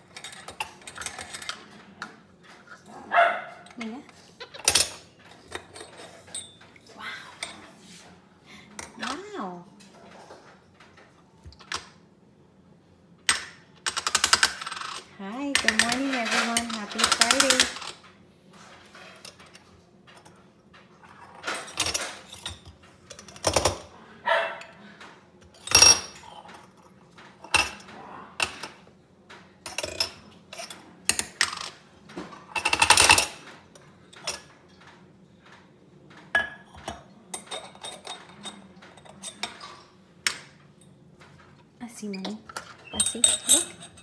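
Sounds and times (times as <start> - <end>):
metal parts clinking: 13.9 - 18.0.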